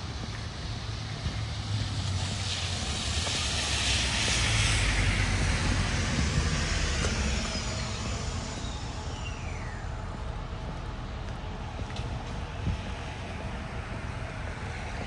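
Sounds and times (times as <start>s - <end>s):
tyre hiss on wet road: 0.0s - 10.0s
low rumble: 4.2s - 15.0s.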